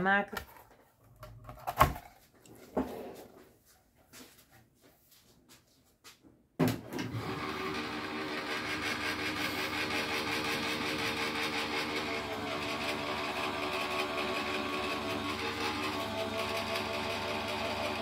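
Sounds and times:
die-cutting machine motor hum: 7.1s - 18.0s.

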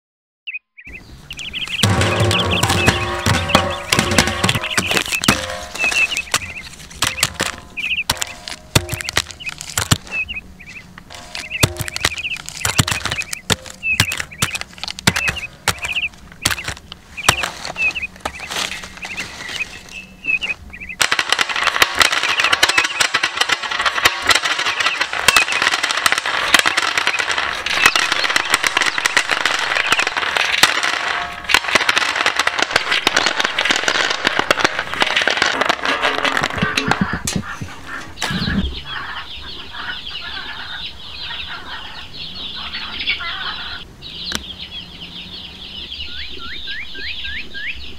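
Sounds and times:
chocolate bars clattering onto pile: 1.8s - 10.1s.

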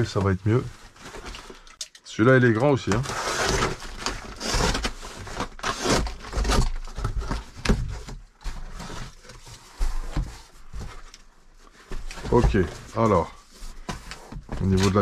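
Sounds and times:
cardboard flaps scraping and rustling: 2.7s - 15.0s
box cutter slitting packing tape: 3.1s - 6.9s.

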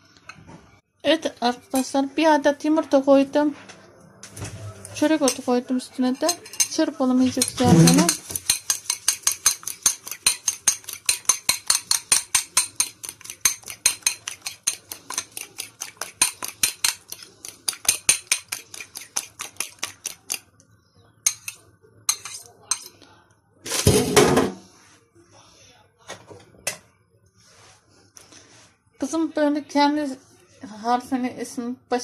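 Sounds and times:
utensil clinking glass bowl: 6.0s - 20.4s.

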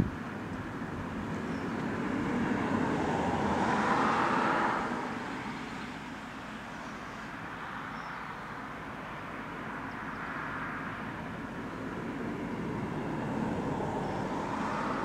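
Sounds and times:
vehicle driving past: 12.6s - 15.0s.

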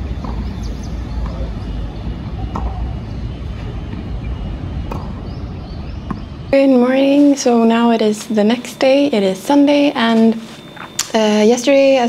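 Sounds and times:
tennis balls being struck: 0.0s - 8.3s
steady low rumble: 0.0s - 12.0s
faint bird chirps: 0.1s - 7.5s.

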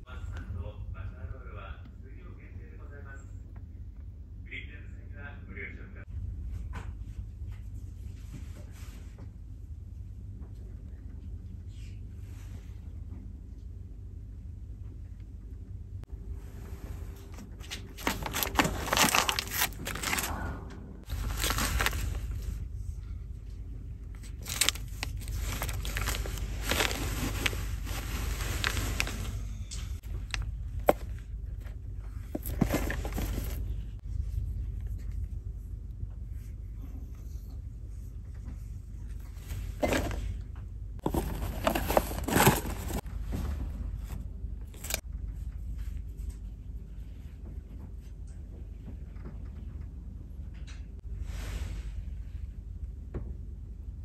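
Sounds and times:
plastic wrappers crinkling: 17.6s - 20.3s, 21.0s - 22.6s, 24.2s - 29.5s, 32.3s - 33.7s, 41.0s - 43.0s, 44.8s - 45.0s.

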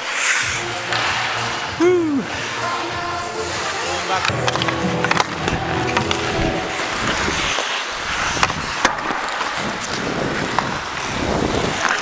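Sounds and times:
ice skate blades scraping ice: 0.0s - 1.7s, 7.0s - 12.0s
hockey sticks and puck clacking: 0.0s - 12.0s
wind rushing on microphone: 9.6s - 11.8s.

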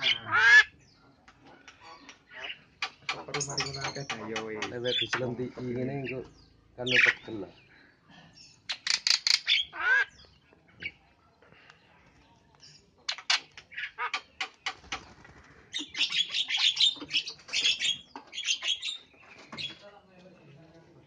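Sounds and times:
bird clicking and squawking: 0.0s - 5.3s, 8.7s - 10.1s, 13.1s - 19.0s
bird wings flapping: 14.6s - 15.7s.

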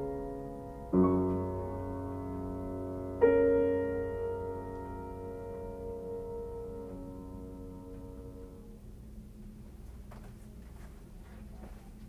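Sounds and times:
piano chord ringing: 0.0s - 8.9s.

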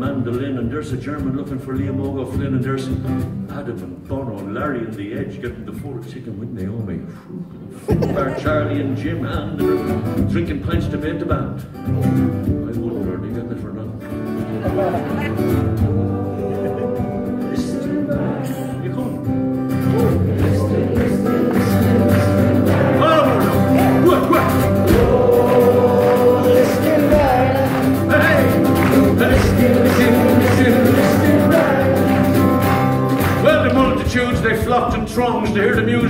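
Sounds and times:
strummed acoustic guitar: 0.0s - 6.9s, 7.9s - 36.0s
person singing: 14.5s - 32.9s
hand percussion: 19.8s - 34.4s
sliding melody line: 20.2s - 34.0s.

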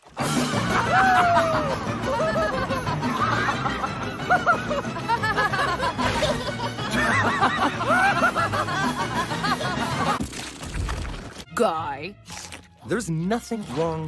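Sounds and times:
background music: 0.0s - 14.0s
cartoon characters giggling: 0.7s - 10.2s.

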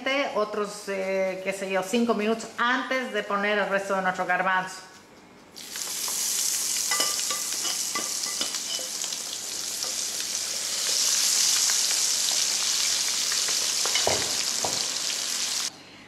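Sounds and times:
chickpeas deep-frying in oil: 5.6s - 15.7s.

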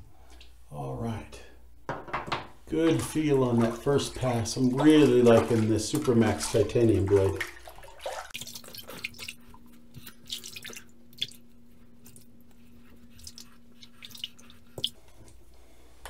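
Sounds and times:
low steady hum: 0.0s - 16.0s
water dripping in a sink: 0.2s - 0.6s, 2.8s - 12.6s, 13.2s - 15.4s.

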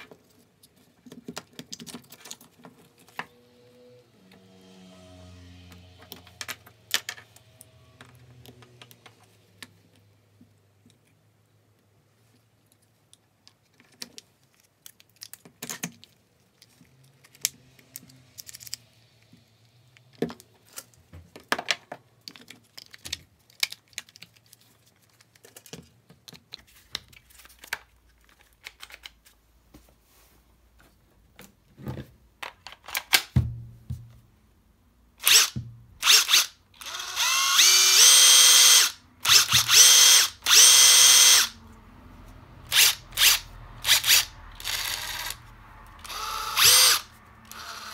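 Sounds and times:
impact driver motor running: 35.2s - 41.5s, 42.7s - 45.4s, 46.0s - 47.9s.

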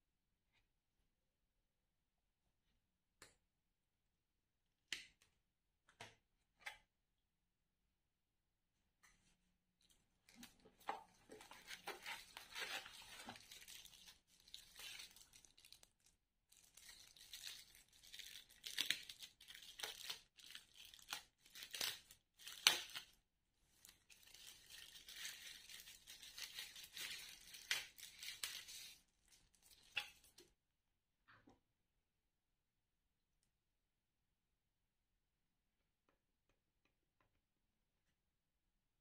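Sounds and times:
plastic bag crinkling: 11.4s - 22.6s, 24.1s - 29.0s.

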